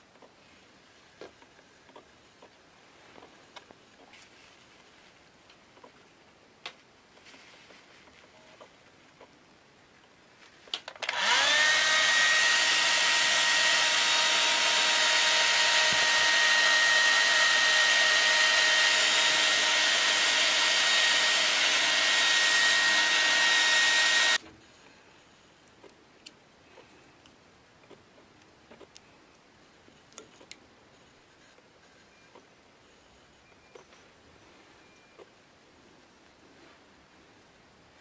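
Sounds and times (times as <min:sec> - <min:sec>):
hair dryer whining: 0:11.0 - 0:24.4.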